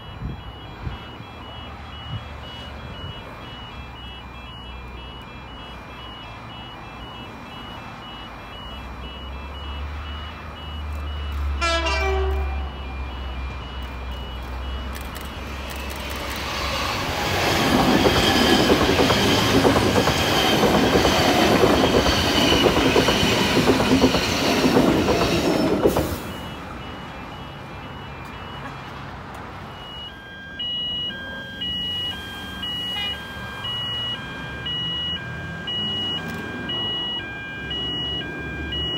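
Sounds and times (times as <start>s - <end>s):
repeating electronic beeps: 0.0s - 11.6s, 12.6s - 29.0s, 29.6s - 38.9s
train passing with rushing noise: 0.0s - 38.9s
train horn blast: 11.6s - 12.8s.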